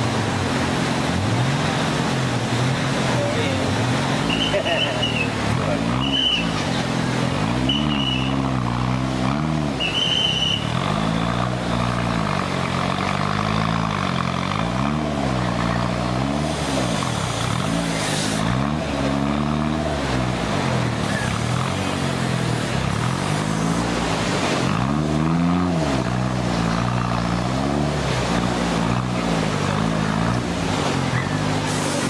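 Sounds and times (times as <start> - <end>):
truck engine revving: 0.0 - 32.0.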